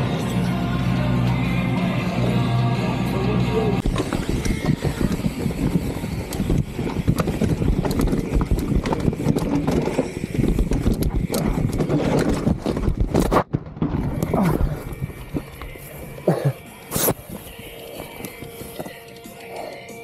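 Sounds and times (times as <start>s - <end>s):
noisy rush: 0.0s - 20.0s
mountain bike rattling and clattering: 3.8s - 15.9s.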